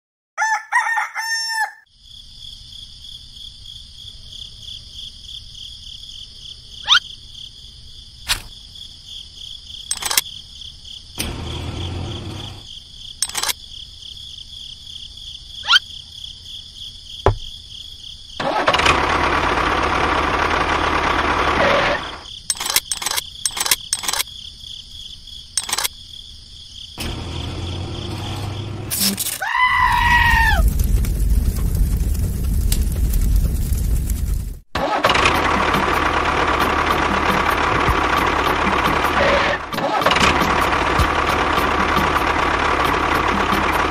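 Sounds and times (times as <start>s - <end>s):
rooster crowing: 0.4s - 1.9s, 29.4s - 30.6s
scattered clicks: 9.9s - 10.3s, 13.2s - 13.6s, 22.5s - 24.3s, 25.6s - 25.9s
bleat-like call: 29.4s - 30.6s.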